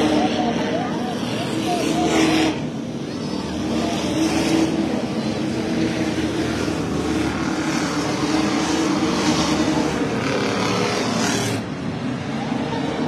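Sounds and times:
race cars passing: 0:00.0 - 0:13.0.

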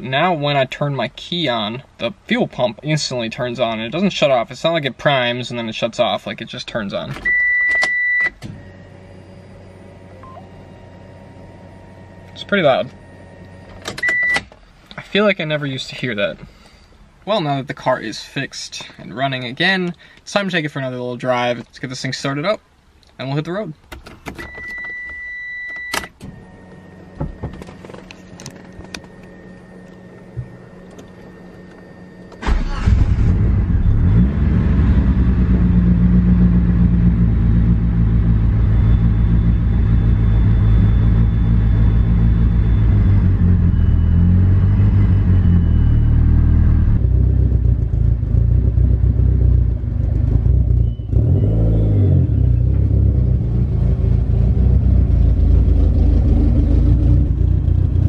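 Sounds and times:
fuel pump whine: 0:24.5 - 0:58.0
car engine idling: 0:26.4 - 0:51.4, 0:52.3 - 0:58.0
engine cranking and starting: 0:32.3 - 0:33.8.

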